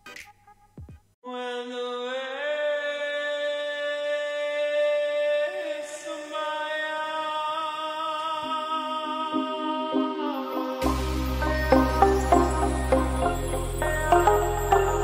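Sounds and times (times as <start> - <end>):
music of long held chords: 8.9 - 15.0.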